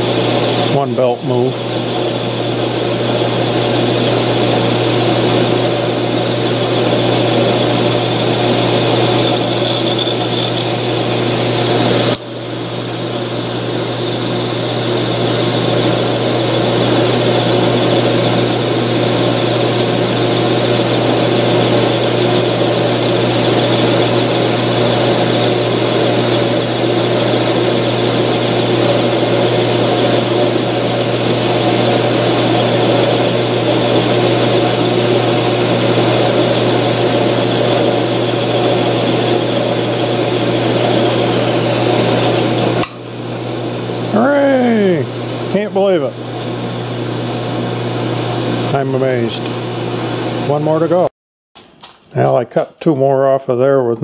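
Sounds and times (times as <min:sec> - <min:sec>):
metal lathe motor hum: 0:00.0 - 0:51.0
parting tool cutting metal: 0:07.6 - 0:11.3.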